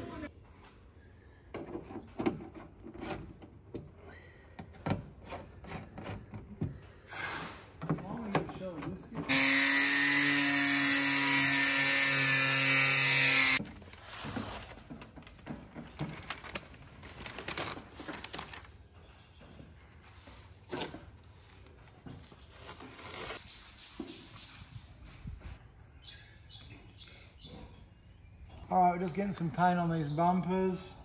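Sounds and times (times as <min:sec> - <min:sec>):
angle grinder cutting whine: 0:09.3 - 0:13.6
paper rustles and taps: 0:14.9 - 0:18.7.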